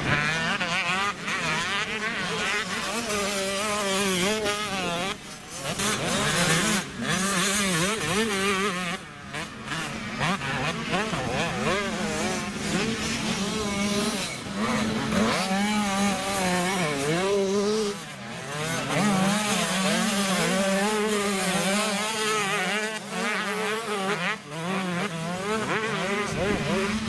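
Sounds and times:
motocross bike engines revving: 0:00.0 - 0:27.0.

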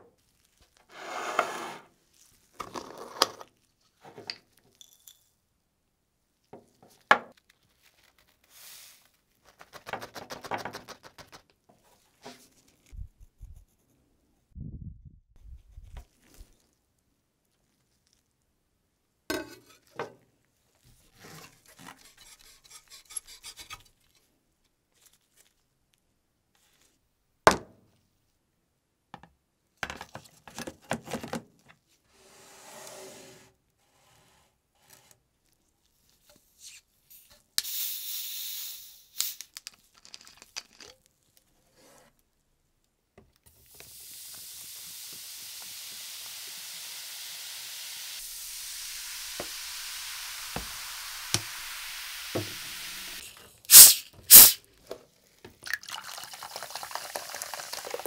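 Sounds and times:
plastic bottle hissing open: 0:37.6 - 0:39.7, 0:43.6 - 0:54.7
cola fizzing: 0:43.9 - 0:54.6, 0:55.6 - 0:58.0.

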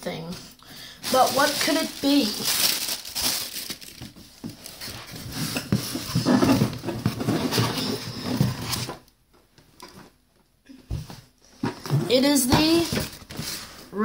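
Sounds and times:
cardboard box rustling and scraping: 0:04.6 - 0:09.0.

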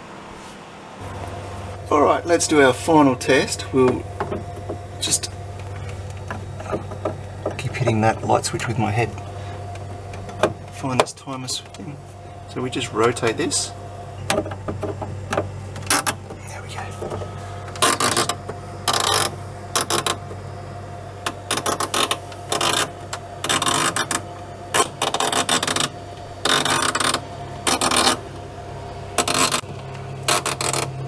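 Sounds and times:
compressor humming: 0:00.0 - 0:31.0.

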